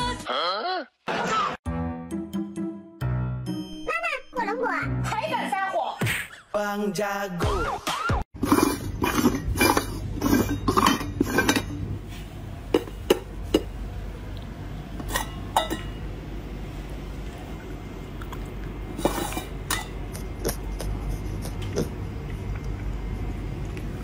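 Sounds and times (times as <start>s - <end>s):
metal bowls scraping and knocking: 8.4s - 12.0s, 15.0s - 16.0s, 19.0s - 21.9s
low steady hum: 8.4s - 24.0s
metal bowl clinks: 9.1s - 11.8s, 15.1s - 16.0s.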